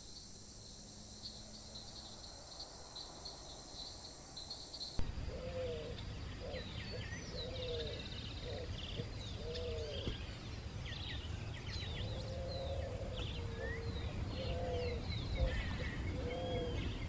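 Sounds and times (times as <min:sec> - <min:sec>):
steady low rumble: 0:05.0 - 0:07.4
low arching animal call: 0:11.9 - 0:17.0.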